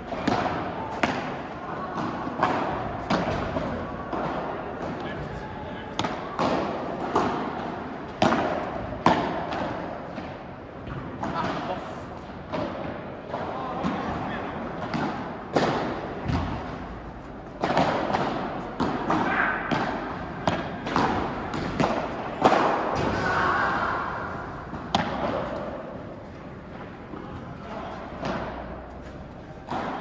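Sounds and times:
rackets hitting ball: 0:00.0 - 0:30.0
ball bouncing off court and walls: 0:14.8 - 0:23.3.

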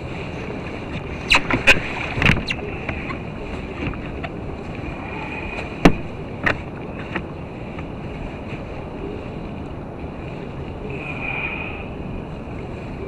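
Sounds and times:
choppy water against kayak hull: 0:00.0 - 0:13.0
wind: 0:00.0 - 0:13.0
sharp knocks on hull: 0:05.8 - 0:07.2.

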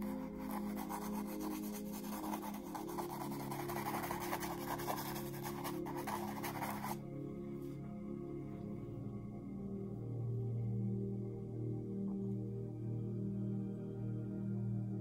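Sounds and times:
paintbrush scrubbing on canvas: 0:00.0 - 0:07.0
soft background music: 0:00.0 - 0:15.0.

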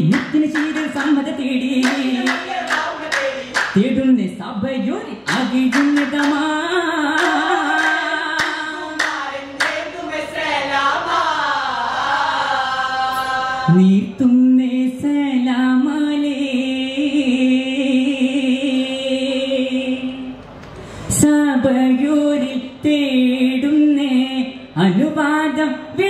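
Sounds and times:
hand claps: 0:00.1 - 0:01.2, 0:01.8 - 0:03.8, 0:05.3 - 0:06.5, 0:07.1 - 0:09.9.

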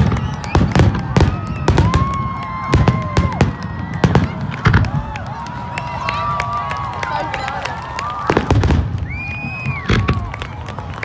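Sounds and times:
fireworks bursting with sharp bangs: 0:00.0 - 0:05.5, 0:08.2 - 0:11.0.

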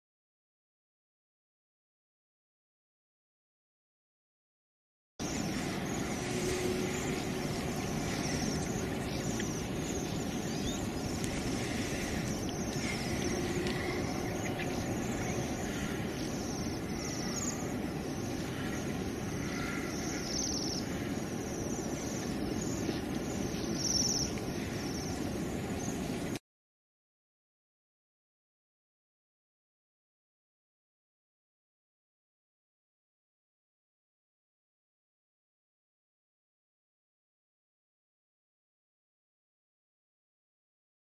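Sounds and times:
low background rumble: 0:05.2 - 0:26.4.

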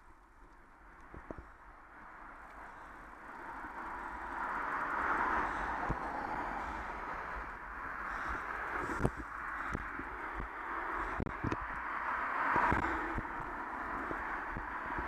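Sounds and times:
vehicle passing close by: 0:02.7 - 0:15.0.

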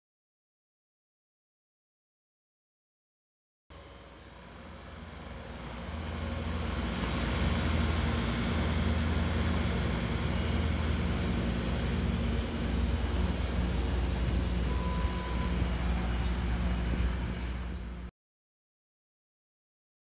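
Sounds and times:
diesel engine of track loader: 0:03.7 - 0:18.1.

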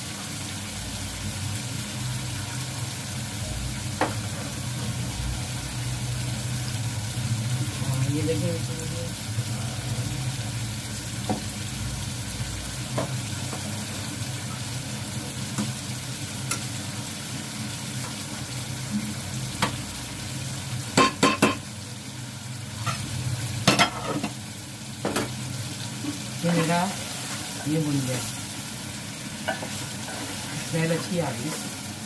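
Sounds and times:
food sizzling in oil: 0:00.0 - 0:32.0.

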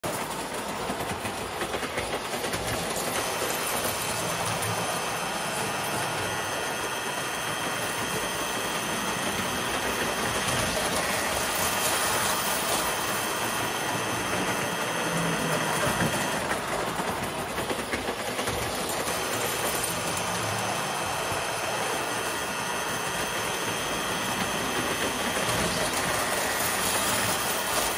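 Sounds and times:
wheels clattering on rails: 0:00.0 - 0:22.3
whir of toy train motors: 0:00.0 - 0:27.9.

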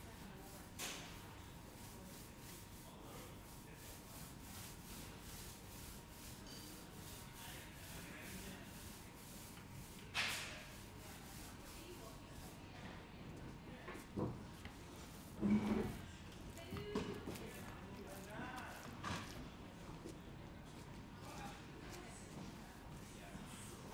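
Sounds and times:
paint roller rolling on wall: 0:00.1 - 0:12.6, 0:14.1 - 0:19.4.

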